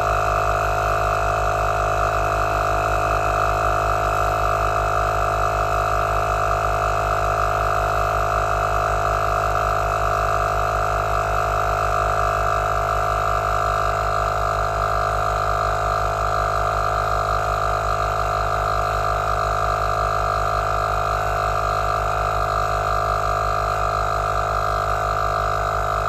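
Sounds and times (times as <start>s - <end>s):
tyre compressor pump pulsing: 0.0s - 26.0s.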